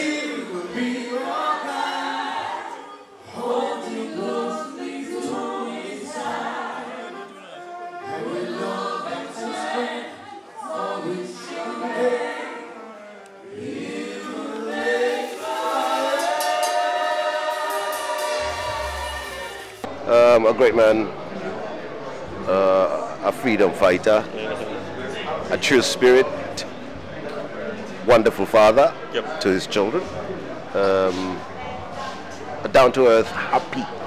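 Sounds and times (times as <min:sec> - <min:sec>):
man and women singing together: 0:00.0 - 0:19.9.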